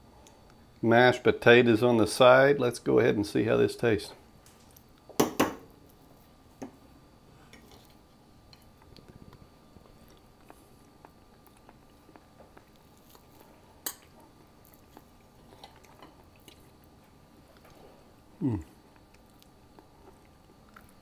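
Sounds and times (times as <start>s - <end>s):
quiet chewing: 7.4s - 21.0s.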